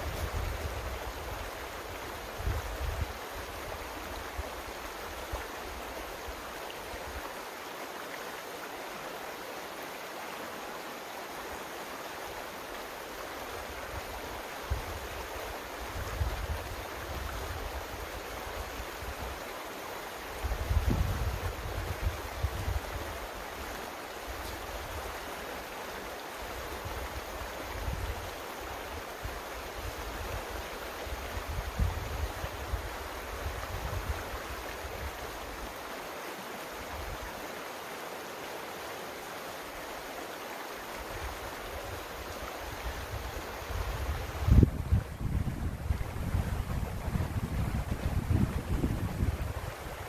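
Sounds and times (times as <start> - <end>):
wind rumble on microphone: 0.0 - 4.6, 13.8 - 19.4, 20.3 - 23.3, 26.6 - 28.3, 29.2 - 35.4, 41.2 - 50.0
mountain creek running: 0.0 - 50.0.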